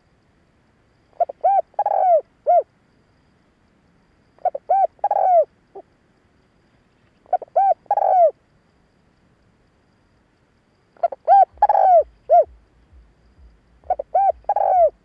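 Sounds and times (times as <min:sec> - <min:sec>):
dove cooing: 0:01.2 - 0:02.7, 0:04.4 - 0:05.5, 0:07.3 - 0:08.4, 0:11.0 - 0:12.6, 0:13.8 - 0:15.0.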